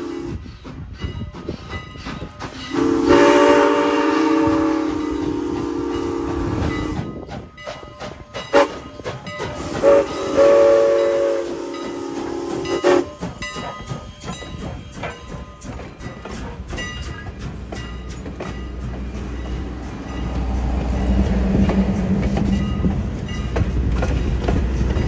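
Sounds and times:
train horn blasts: 0:00.0 - 0:00.4, 0:02.7 - 0:07.1, 0:08.5 - 0:08.9, 0:09.8 - 0:13.2
train rumbling on rails: 0:00.0 - 0:25.0.

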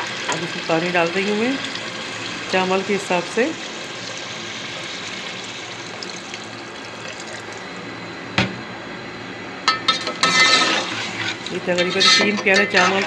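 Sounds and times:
water pouring into a pot: 0:01.4 - 0:07.7.

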